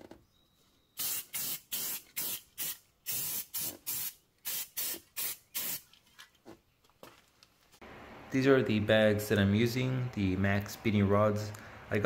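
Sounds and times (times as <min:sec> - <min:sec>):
spray paint can hissing: 0:01.0 - 0:05.8.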